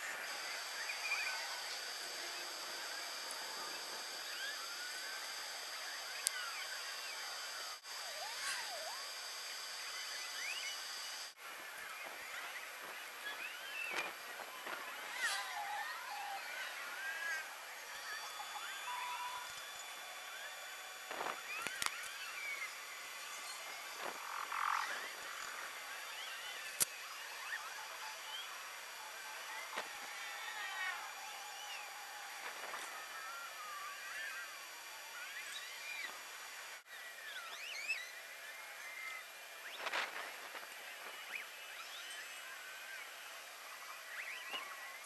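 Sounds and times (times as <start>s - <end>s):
steady outdoor hiss: 0.0s - 45.0s
small birds chirping: 9.8s - 34.5s, 36.9s - 43.2s.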